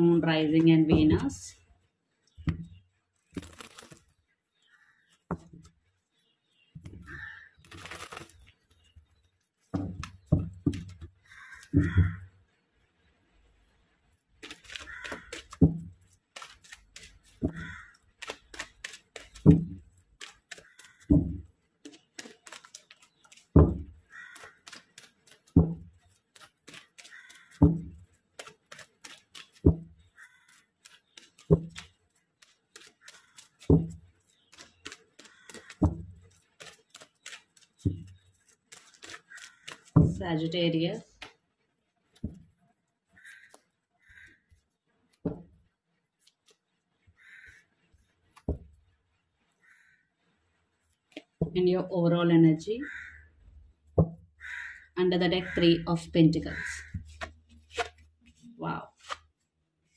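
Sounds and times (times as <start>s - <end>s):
cards rustling and sliding: 3.3s - 4.2s, 7.6s - 8.9s, 14.4s - 17.4s, 18.0s - 21.0s, 21.9s - 23.6s, 24.3s - 27.6s, 28.2s - 29.7s, 30.4s - 40.0s, 57.0s - 59.9s.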